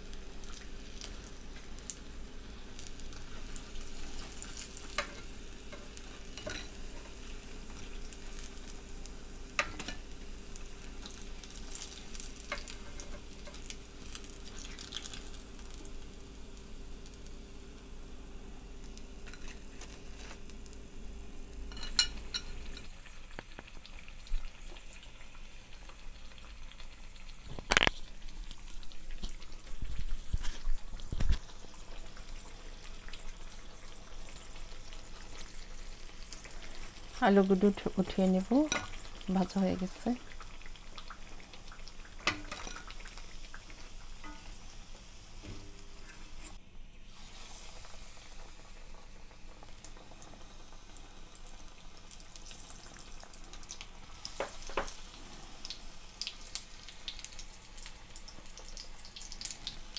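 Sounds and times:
potato slices sizzling in oil: 0.0s - 59.9s
fork knocking pan: 44.2s - 44.5s.

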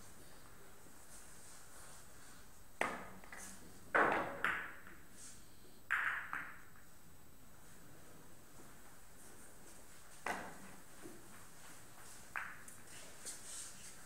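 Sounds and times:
cue striking ball: 5.9s - 6.6s
billiard balls clacking: 5.9s - 6.8s.

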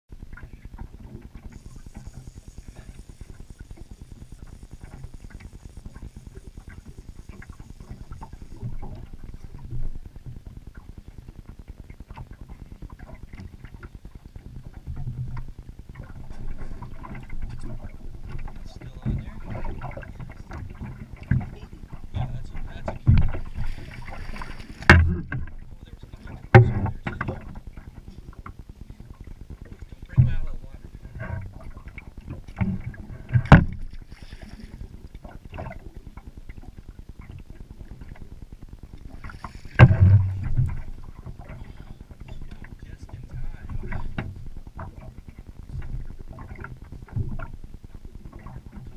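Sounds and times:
outboard motor puttering: 0.1s - 48.9s
wind and water noise: 0.1s - 48.9s.

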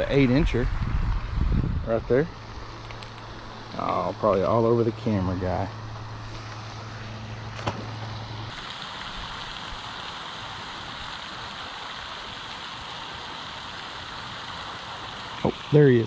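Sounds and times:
water falling from fountain: 0.0s - 5.8s, 7.6s - 16.0s
low hum: 0.0s - 8.6s.

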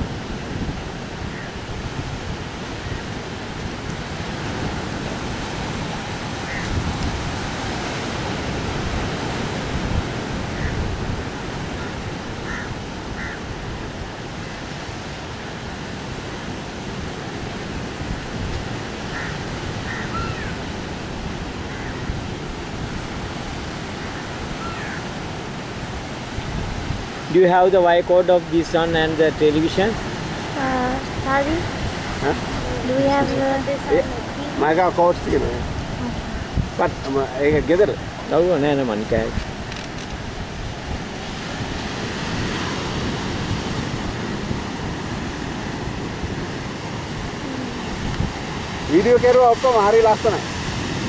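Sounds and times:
sea surf: 0.0s - 51.0s
wind: 0.0s - 51.0s.

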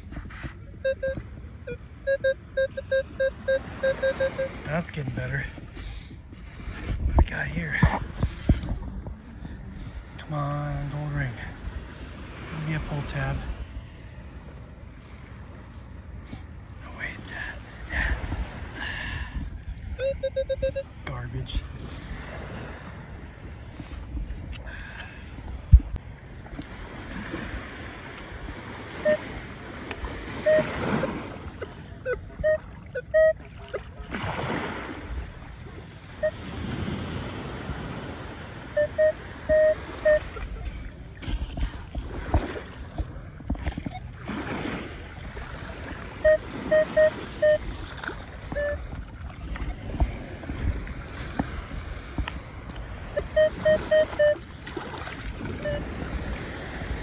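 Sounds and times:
surf and wind hiss: 0.0s - 31.8s, 34.1s - 42.8s, 55.0s - 57.0s
metal detector beeps: 0.7s - 4.6s, 20.0s - 20.9s, 29.0s - 29.3s, 30.4s - 33.8s, 38.8s - 40.7s, 46.2s - 47.6s, 48.5s - 48.9s, 53.2s - 54.4s, 55.6s - 55.9s.

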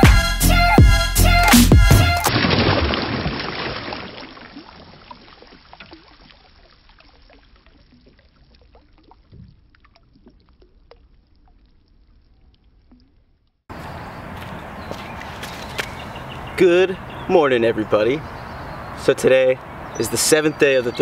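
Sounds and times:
water splashing against board: 2.3s - 13.2s
faint water drips: 3.6s - 13.6s.

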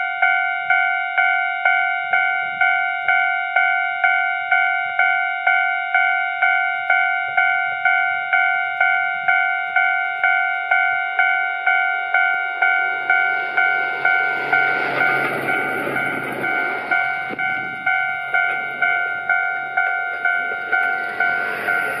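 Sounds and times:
level-crossing warning bell ringing: 0.0s - 22.0s
train passing with engine hum: 8.6s - 22.0s.

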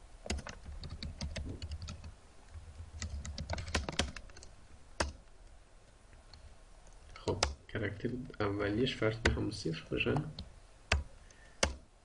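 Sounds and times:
computer keyboard typing: 0.3s - 5.2s, 7.3s - 7.6s, 10.1s - 11.8s.

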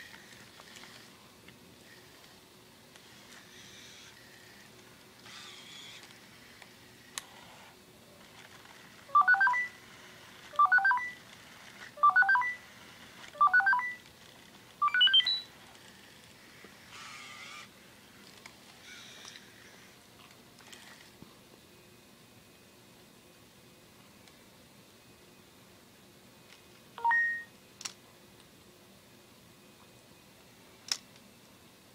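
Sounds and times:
faint motor whirring: 0.0s - 31.9s
robot dog electronic beeps: 9.1s - 9.8s, 10.6s - 11.2s, 12.0s - 12.6s, 13.4s - 14.0s, 14.8s - 15.5s, 27.0s - 27.5s.

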